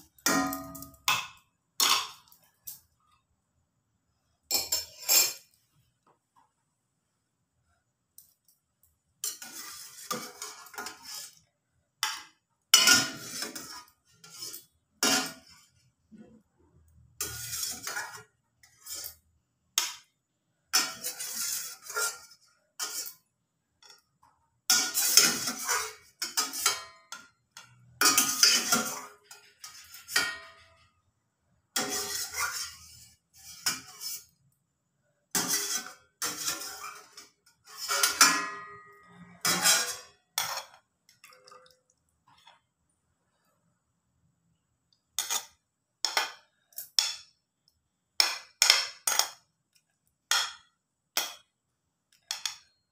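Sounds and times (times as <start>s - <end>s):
spoon scraping metal pot: 4.5s - 5.6s, 9.2s - 12.2s, 12.8s - 16.4s, 17.2s - 19.9s, 20.7s - 24.1s, 24.7s - 30.9s, 31.7s - 34.4s, 35.3s - 42.6s, 45.2s - 47.2s, 48.2s - 49.4s.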